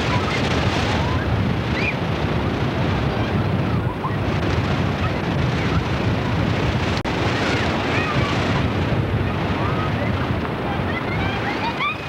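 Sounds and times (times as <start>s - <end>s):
breaking surf: 0.0s - 12.0s
wind buffeting microphone: 0.0s - 12.0s
distant children shouting: 7.2s - 12.0s.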